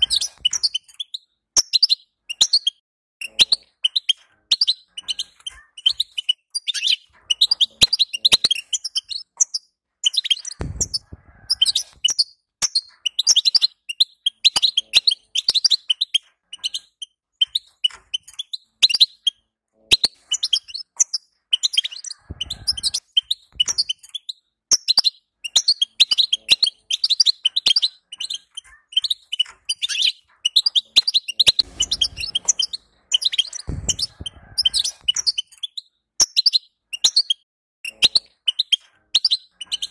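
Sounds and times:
bird twittering: 0.0s - 39.9s
soft low thumps: 10.6s - 11.8s, 33.7s - 35.2s.

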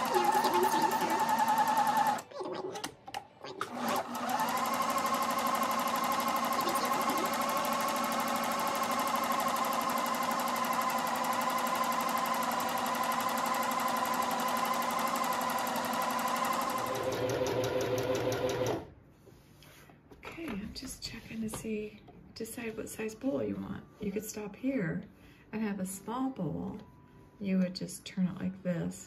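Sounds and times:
sewing machine running: 0.0s - 2.2s, 3.6s - 18.9s.

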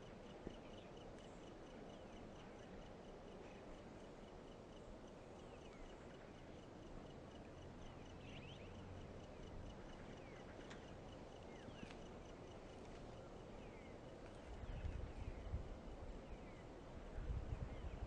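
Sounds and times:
birds chirping: 0.0s - 18.0s
faint pulsing high tone: 0.0s - 18.0s.

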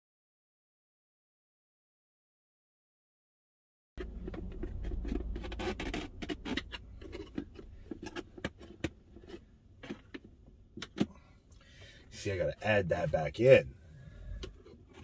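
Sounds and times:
low rumble: 4.0s - 8.4s
scratchy rustling: 4.0s - 10.3s.

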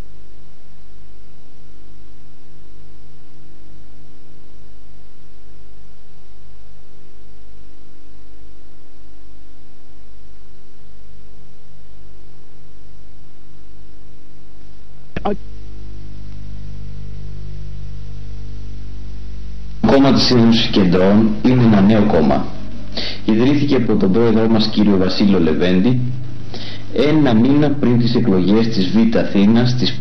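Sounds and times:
electrical hum: 0.0s - 30.0s
brief crackle: 16.1s - 16.6s.

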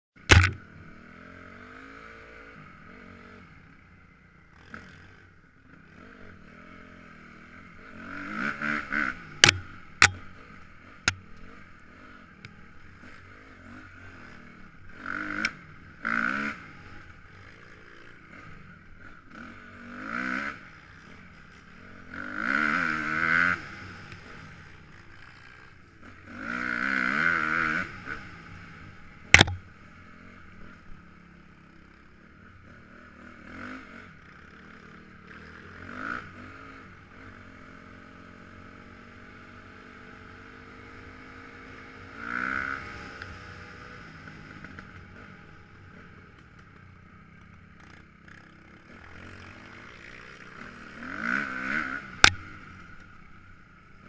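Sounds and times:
dirt bike engine revving: 0.2s - 3.7s, 4.5s - 30.8s, 32.6s - 45.6s, 47.8s - 54.0s
sharp knocks: 0.3s - 0.6s, 9.4s - 10.3s, 29.4s - 29.6s.

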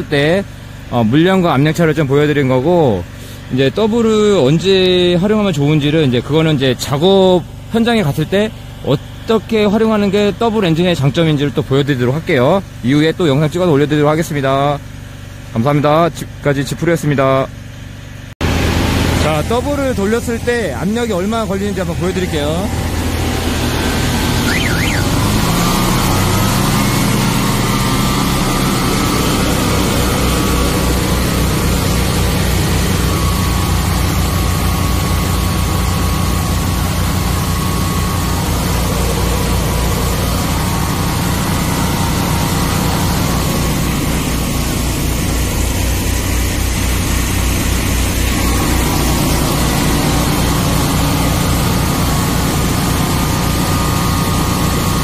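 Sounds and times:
engines droning: 17.0s - 55.0s.

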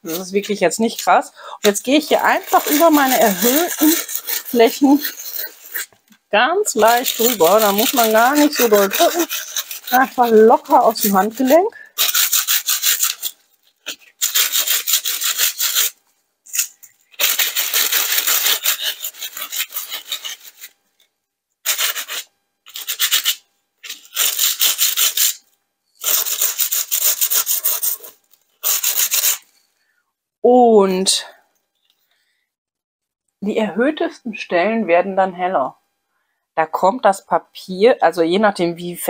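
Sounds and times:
sandpaper rubbing on cardstock: 1.6s - 5.9s, 6.8s - 20.7s, 21.6s - 25.4s, 26.0s - 29.4s.

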